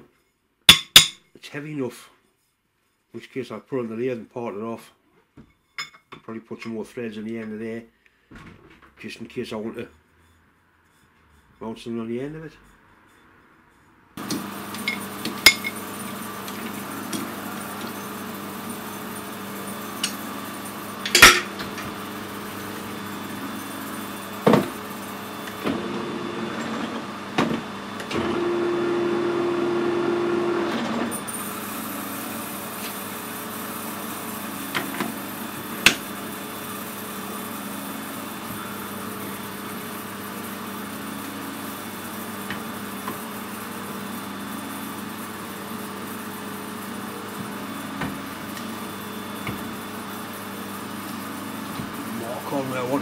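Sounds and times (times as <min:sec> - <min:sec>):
lathe motor hum: 0:14.2 - 0:53.0
lathe whine: 0:14.2 - 0:53.0.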